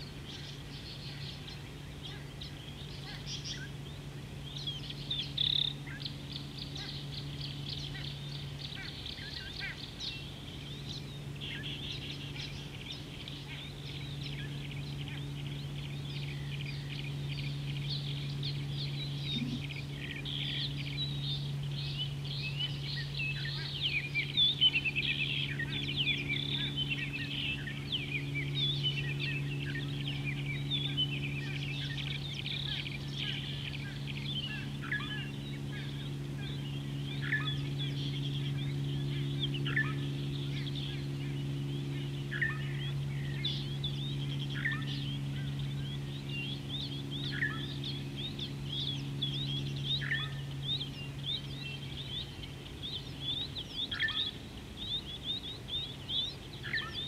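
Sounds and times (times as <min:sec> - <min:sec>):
birds chirping: 0:00.0 - 0:57.0
steady low hum: 0:00.0 - 0:57.0.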